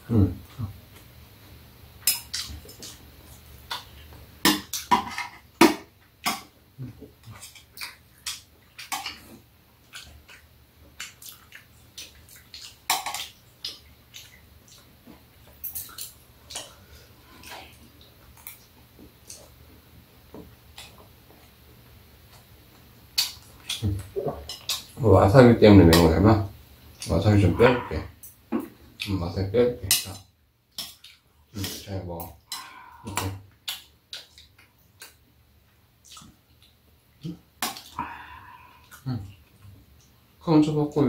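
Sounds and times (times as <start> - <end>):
chewing and mouth sounds: 2.1 - 4.1, 6.8 - 19.6, 36.0 - 40.2.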